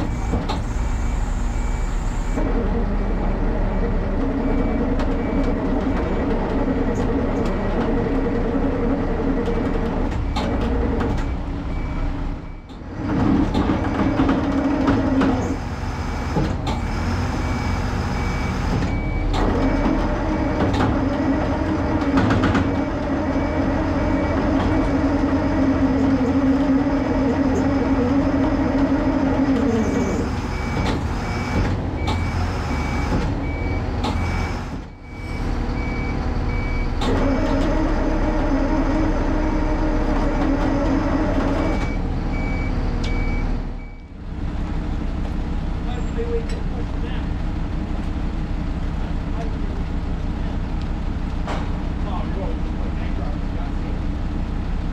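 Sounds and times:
truck reversing beeper: 0.0s - 6.2s, 9.4s - 13.1s, 15.4s - 20.7s, 22.8s - 27.8s, 29.0s - 44.2s
truck engines running under load: 0.0s - 54.9s.

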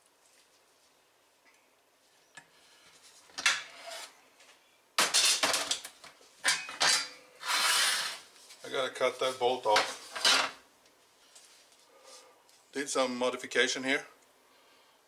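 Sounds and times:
metal car parts clanking: 6.4s - 7.2s.

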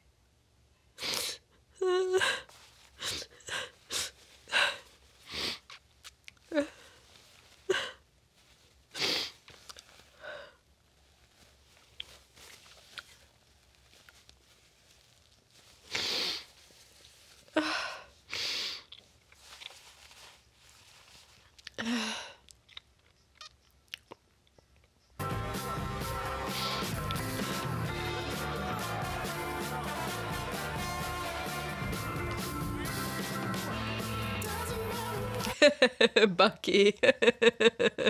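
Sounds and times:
woman crying: 1.7s - 4.8s, 6.5s - 6.9s, 7.7s - 8.0s, 17.5s - 18.1s, 35.2s - 38.0s
sniffles: 8.9s - 10.5s, 15.8s - 16.6s, 26.4s - 27.8s.

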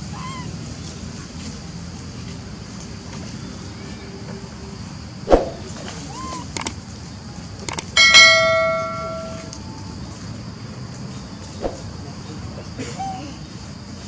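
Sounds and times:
mouse clicks: 7.7s - 7.9s
bell chime: 8.0s - 9.6s.

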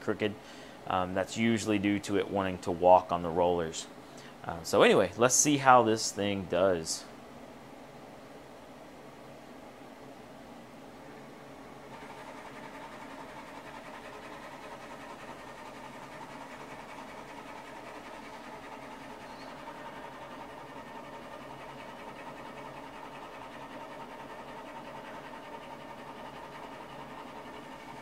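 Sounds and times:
laser engraver carriage whirring: 11.1s - 28.0s.

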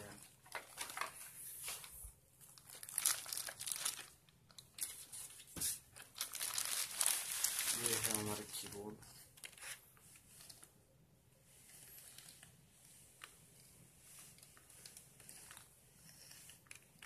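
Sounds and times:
plastic keyboard ticks and rustles: 0.0s - 1.8s.

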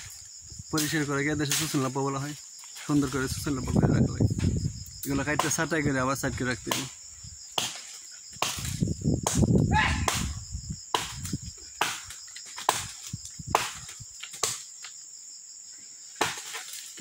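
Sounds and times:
insects buzzing: 0.0s - 17.0s
machete chopping brush: 0.8s - 1.9s, 6.6s - 15.0s, 16.2s - 17.0s.

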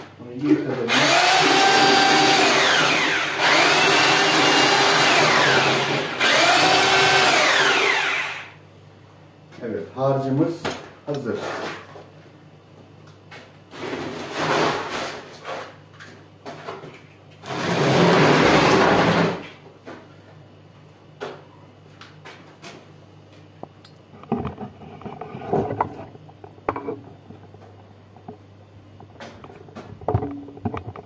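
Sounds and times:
scraping on concrete floor: 11.3s - 12.1s, 13.7s - 20.1s, 24.2s - 27.1s.

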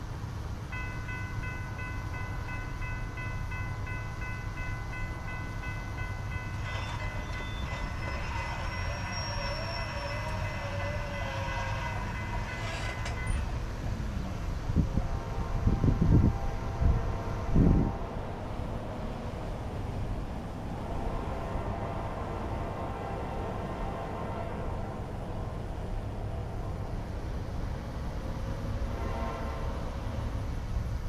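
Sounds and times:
crossing warning bell ringing: 0.6s - 14.0s
distant locomotive horn: 4.6s - 19.1s, 20.7s - 27.0s, 28.4s - 30.5s.

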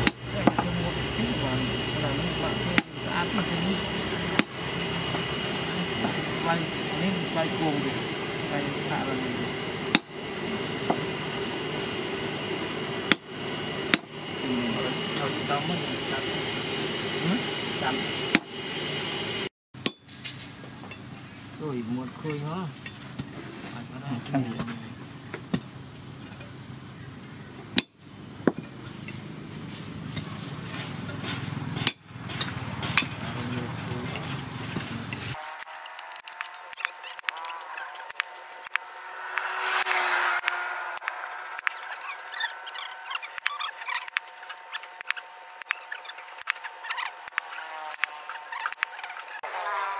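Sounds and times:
hammer striking steel chisel: 2.7s - 5.3s, 9.9s - 10.2s, 13.9s - 14.1s, 19.8s - 20.1s, 31.8s - 33.2s
hammer striking steel punch: 4.3s - 5.2s, 19.8s - 20.1s.

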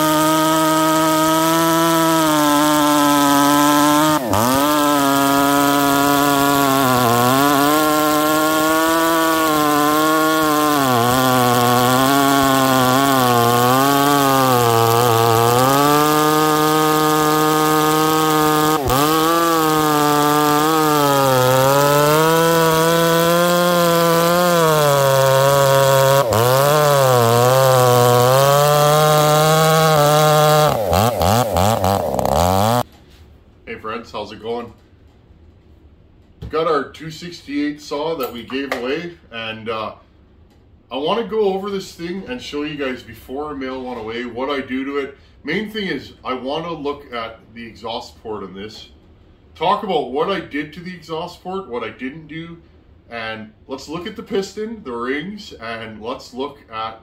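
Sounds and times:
chainsaw cutting log: 0.0s - 32.9s.

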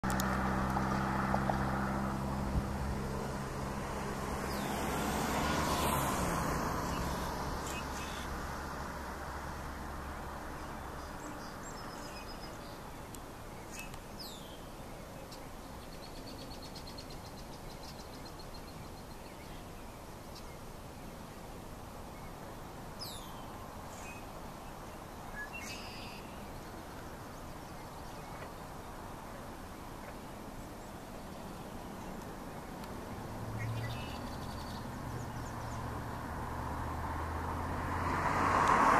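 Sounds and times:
small birds whistling: 6.9s - 8.3s, 25.3s - 26.5s, 33.6s - 35.8s.

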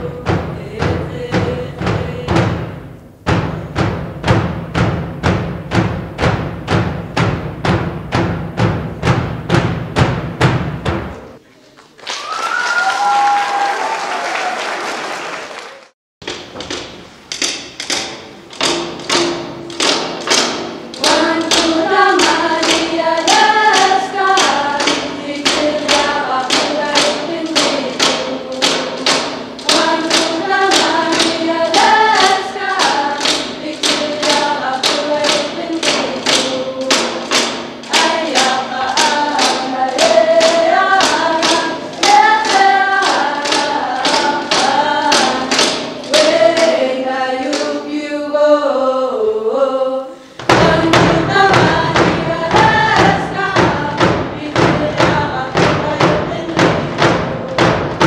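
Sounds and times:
young voices singing: 0.0s - 3.0s, 18.6s - 58.0s
frame drums beating: 0.0s - 11.4s, 16.2s - 47.9s, 50.3s - 58.0s.

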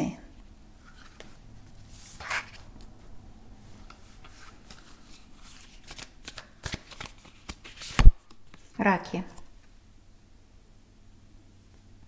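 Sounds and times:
cards rustling: 0.8s - 3.0s, 3.7s - 8.8s
card swish: 4.2s - 8.3s.

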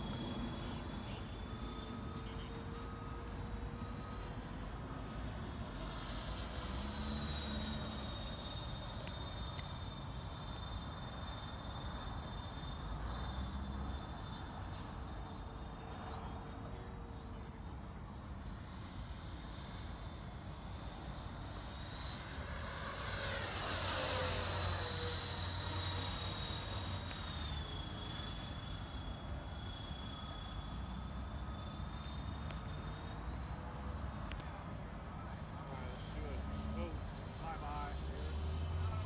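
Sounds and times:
rc jet fans whining: 0.0s - 39.0s.

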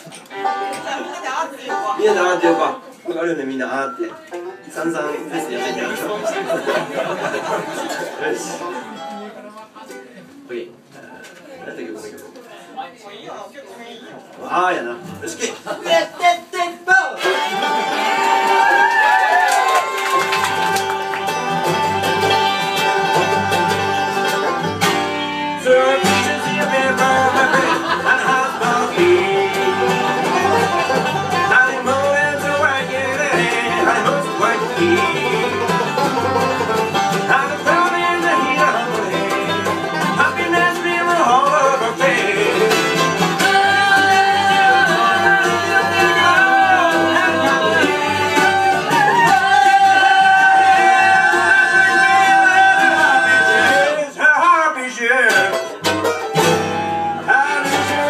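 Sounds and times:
banjo: 0.0s - 10.0s, 17.2s - 54.1s, 54.9s - 58.0s
mandolin: 0.0s - 10.4s, 17.2s - 54.0s, 55.2s - 58.0s
acoustic guitar: 0.0s - 12.6s, 14.2s - 58.0s
fiddle: 0.2s - 2.6s, 20.1s - 53.9s, 55.5s - 58.0s
upright bass: 20.2s - 54.0s
voices singing: 25.0s - 55.6s, 56.6s - 58.0s.

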